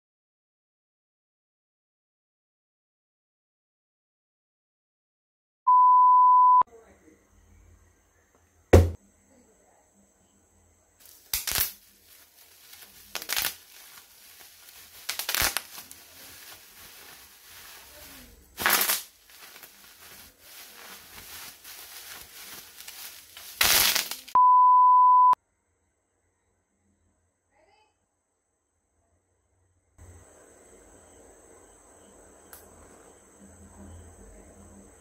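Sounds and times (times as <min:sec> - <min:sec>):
electronic beep: 0:05.7 - 0:06.7, 0:24.4 - 0:25.4
bubble wrap crackling bursts: 0:11.0 - 0:24.4
bubble wrap crinkling: 0:11.0 - 0:24.4.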